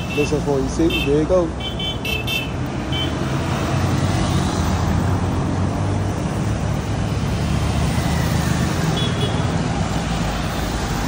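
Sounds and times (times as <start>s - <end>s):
road traffic driving past: 0.0s - 11.0s
motorcycle: 2.5s - 11.0s.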